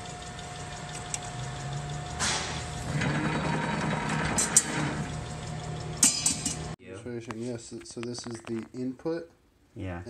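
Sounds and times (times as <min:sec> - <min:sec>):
sheet-metal machine running: 0:00.0 - 0:06.8
rushing mechanical noise: 0:00.9 - 0:06.0.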